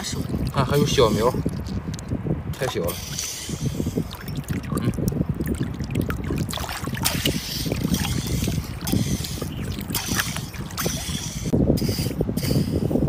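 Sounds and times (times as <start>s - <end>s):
wind buffeting microphone: 0.0s - 13.0s
hand splashing in shallow water: 4.0s - 11.2s.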